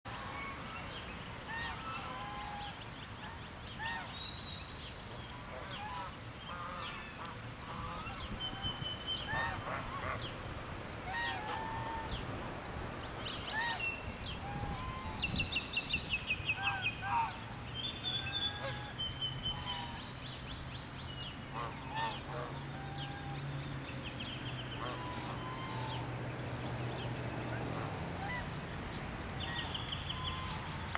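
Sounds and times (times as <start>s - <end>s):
geese honking: 5.4s - 10.4s, 11.0s - 12.2s, 16.5s - 17.5s, 18.1s - 20.0s, 21.5s - 23.4s, 24.7s - 26.1s.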